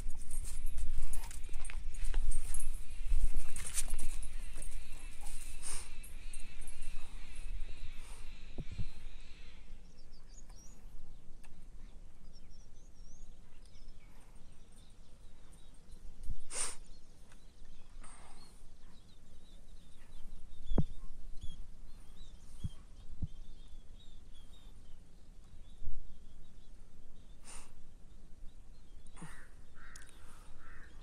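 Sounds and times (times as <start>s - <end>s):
short breathy puffs: 0.0s - 9.7s, 16.3s - 17.0s, 27.4s - 27.8s
faint bird chirps: 0.0s - 31.0s
low steady hum: 0.0s - 31.0s.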